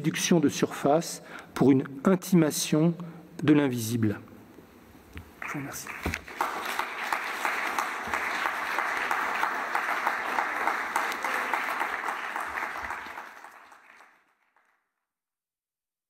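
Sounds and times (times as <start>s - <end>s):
audience applauding: 5.4s - 14.9s.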